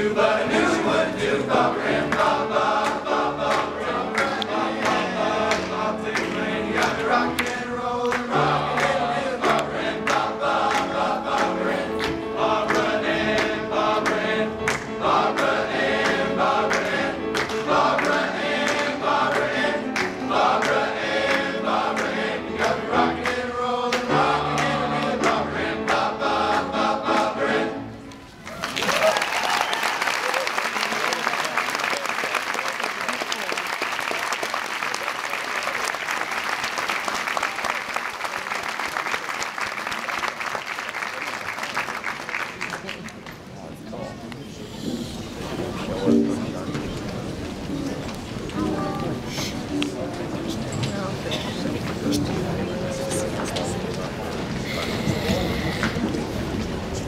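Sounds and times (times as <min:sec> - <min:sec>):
men's choir singing: 0:00.0 - 0:27.9.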